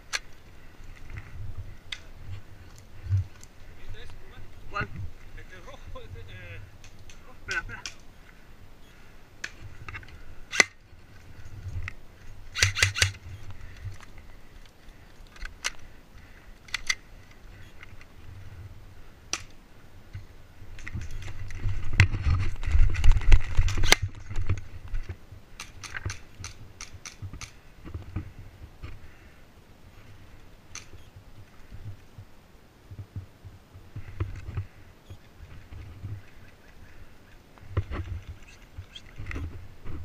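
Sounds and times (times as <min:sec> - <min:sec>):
camera handling noise: 0:11.6 - 0:15.8, 0:16.6 - 0:18.1, 0:20.7 - 0:28.0
airsoft guns firing: 0:12.5 - 0:13.2.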